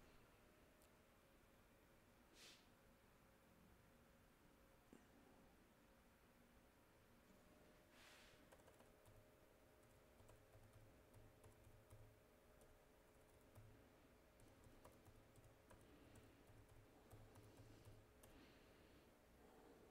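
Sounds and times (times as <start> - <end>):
keyboard typing clicks: 8.5 - 9.2, 9.8 - 13.8, 14.4 - 18.4.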